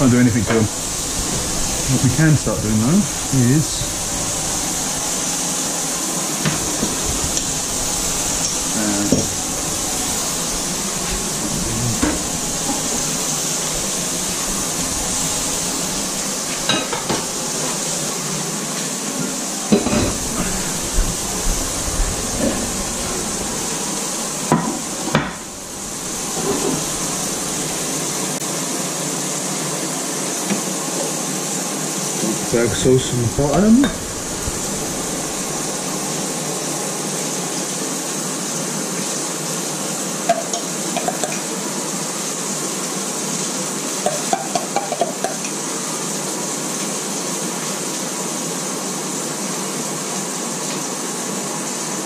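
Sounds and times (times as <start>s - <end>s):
burgers sizzling in a pan: 0.0s - 52.0s
plates and utensils clattering: 11.0s - 13.1s, 16.5s - 17.8s, 19.7s - 20.8s, 22.3s - 23.2s, 24.5s - 25.5s, 26.3s - 27.0s, 33.5s - 34.1s, 44.0s - 45.5s.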